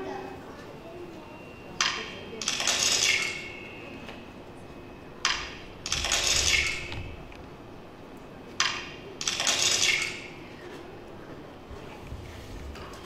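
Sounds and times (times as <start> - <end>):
sharp crack and bright rattle: 5.2 - 7.0, 8.6 - 10.4.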